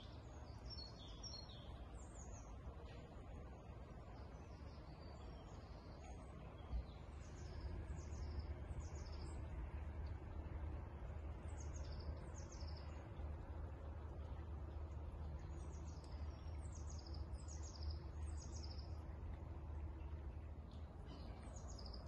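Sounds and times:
small birds chirping: 0:00.0 - 0:22.0
steady low rumble: 0:01.7 - 0:22.0.

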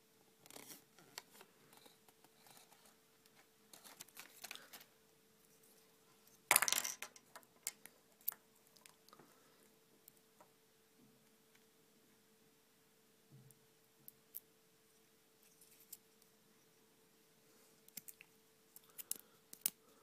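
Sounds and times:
toy pieces clattering: 0:06.5 - 0:07.8
plastic toy pieces clicking: 0:18.9 - 0:19.8.

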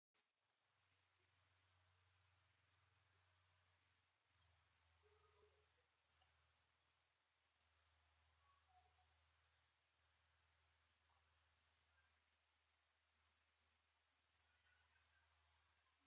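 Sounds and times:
low steady hum: 0:00.2 - 0:16.0.

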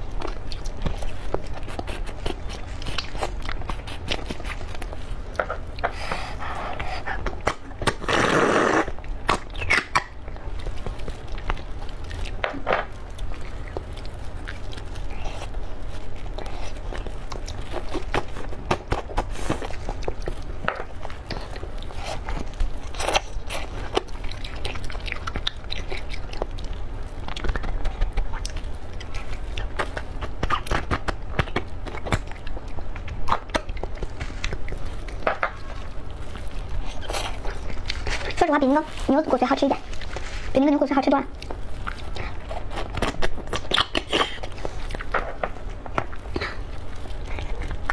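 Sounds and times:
mouth smacks and chewing clicks: 0:00.1 - 0:39.0, 0:41.1 - 0:47.9
wet slurping and sucking: 0:05.8 - 0:10.0.

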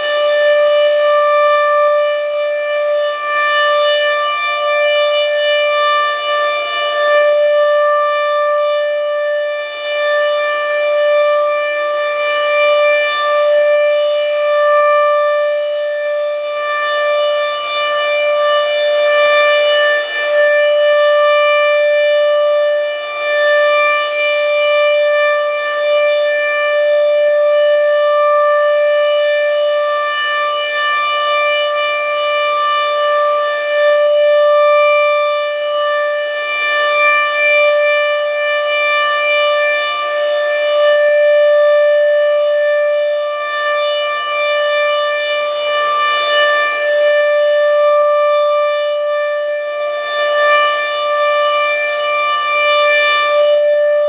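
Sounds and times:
warning siren steady tone: 0:00.0 - 0:54.0.

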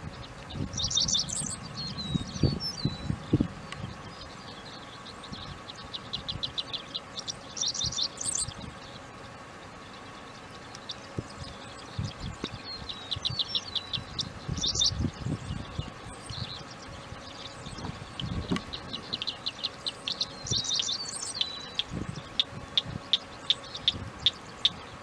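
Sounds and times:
wind buffeting microphone: 0:00.0 - 0:06.6, 0:11.1 - 0:19.4, 0:21.7 - 0:23.2, 0:23.8 - 0:24.9
songbirds chirping and trilling: 0:00.0 - 0:25.0.

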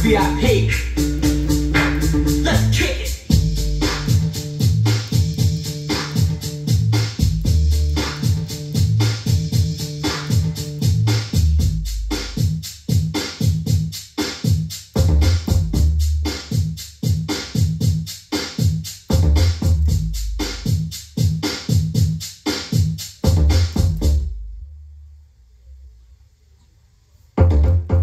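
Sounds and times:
heavy bass notes: 0:00.0 - 0:12.7, 0:15.0 - 0:16.8, 0:19.1 - 0:21.4, 0:23.2 - 0:25.9, 0:27.4 - 0:28.0
hi-hat ticks: 0:00.0 - 0:24.3
drum machine beat: 0:00.0 - 0:24.6, 0:27.4 - 0:28.0.

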